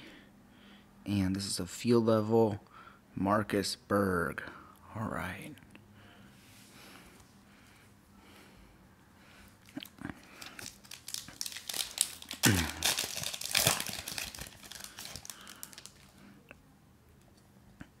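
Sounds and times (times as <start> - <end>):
foil wrapper crinkling and tearing: 10.2 - 16.2.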